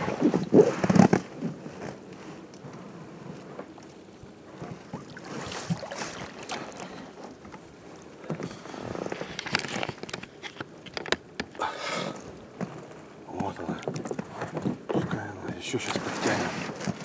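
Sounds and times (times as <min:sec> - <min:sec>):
wet rope rustling and splashing: 0:04.9 - 0:07.0.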